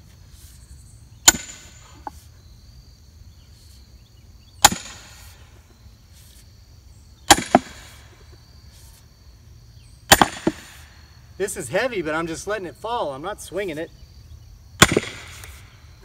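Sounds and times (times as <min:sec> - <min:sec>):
sledgehammer clanging on steel wedge: 0:01.3 - 0:01.8, 0:04.6 - 0:05.1, 0:07.3 - 0:07.8.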